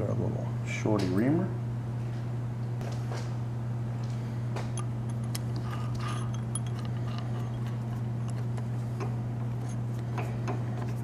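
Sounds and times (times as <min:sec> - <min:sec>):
steady low hum: 0:00.0 - 0:11.0
metallic clicks and clinks: 0:04.8 - 0:08.5.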